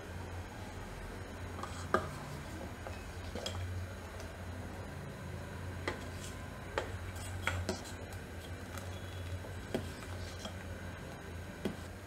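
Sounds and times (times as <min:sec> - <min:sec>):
ladle stirring in a metal pot: 0:05.9 - 0:10.7.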